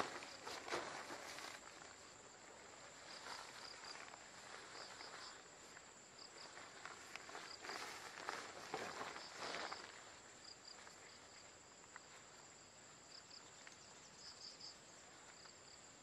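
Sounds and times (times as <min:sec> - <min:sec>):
rain poncho fabric rustling: 0:00.0 - 0:10.2
high insect drone: 0:00.0 - 0:16.0
insect chirps: 0:00.0 - 0:16.0.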